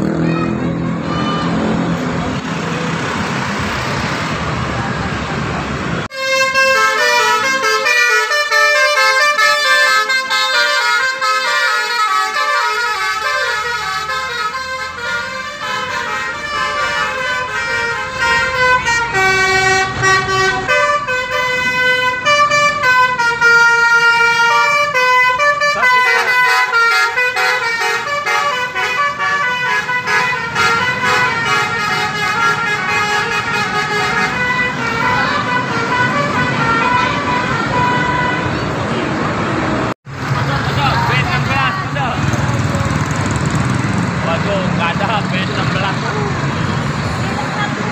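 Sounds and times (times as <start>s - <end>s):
multi-tone bus air horn melody: 6.1s - 38.8s.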